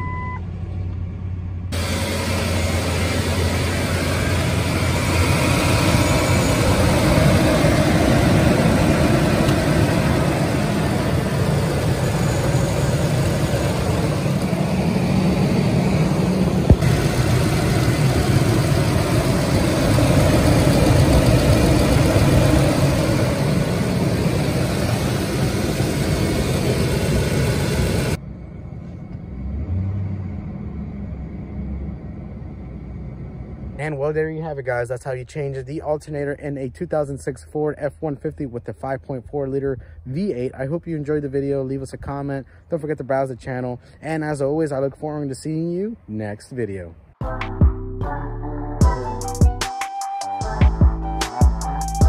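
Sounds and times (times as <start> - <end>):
engine idling: 0.0 - 29.4.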